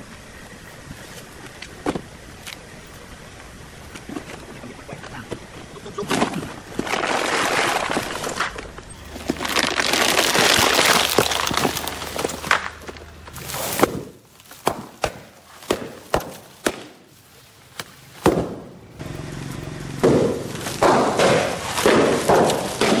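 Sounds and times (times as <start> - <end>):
cardboard and plastic crunching: 5.2 - 18.7, 20.1 - 23.0
foil balloons popping: 6.0 - 17.1, 20.0 - 23.0
foil crinkling: 6.3 - 14.6.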